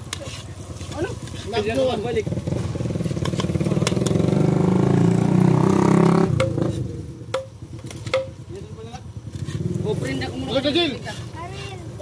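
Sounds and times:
small motorcycle engine: 0:00.8 - 0:12.0.

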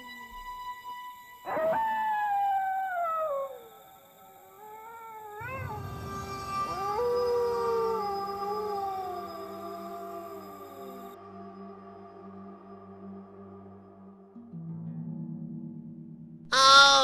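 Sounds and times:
dog howling: 0:01.4 - 0:12.0
low rumble: 0:05.5 - 0:07.9.

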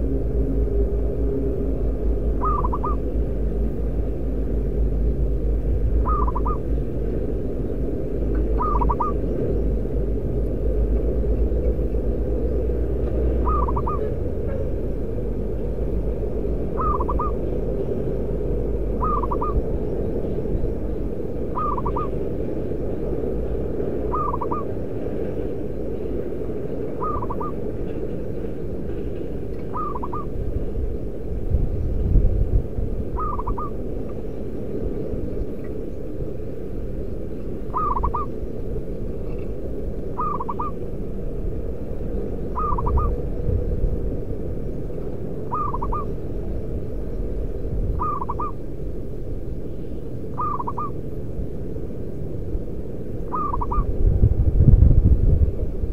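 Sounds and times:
dove cooing: 0:00.0 - 0:03.5, 0:06.0 - 0:06.8, 0:08.3 - 0:09.5, 0:13.2 - 0:15.4, 0:16.6 - 0:17.6, 0:18.9 - 0:19.6, 0:21.5 - 0:22.3, 0:24.1 - 0:24.8, 0:27.0 - 0:27.6, 0:29.6 - 0:30.3, 0:33.2 - 0:33.8, 0:37.7 - 0:38.3, 0:40.1 - 0:40.8, 0:42.5 - 0:43.2, 0:45.5 - 0:46.2, 0:48.0 - 0:48.6, 0:50.4 - 0:51.0, 0:53.3 - 0:53.9
steady low rumble: 0:00.0 - 0:55.9.

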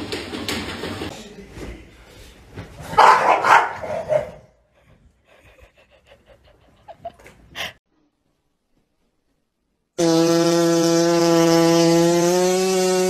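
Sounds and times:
dog barking: 0:03.0 - 0:04.5.

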